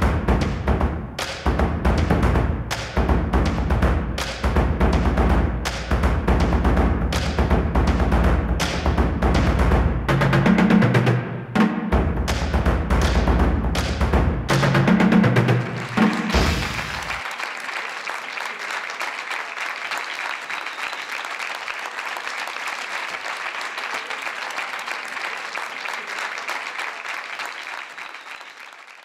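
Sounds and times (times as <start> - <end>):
music: 0.0 - 17.3
audience applauding: 15.4 - 29.0.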